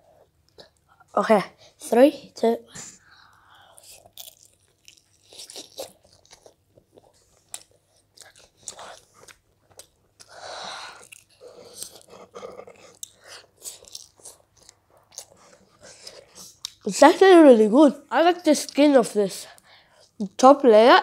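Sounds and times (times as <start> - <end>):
chewing with crunches: 3.6 - 16.9.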